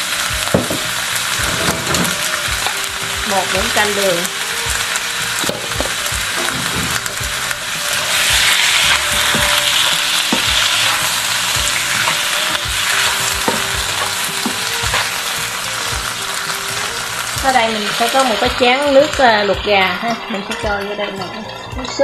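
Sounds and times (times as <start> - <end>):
food sizzling in hot oil: 0.0 - 22.0
spatula scraping and knocking pan: 0.4 - 16.5.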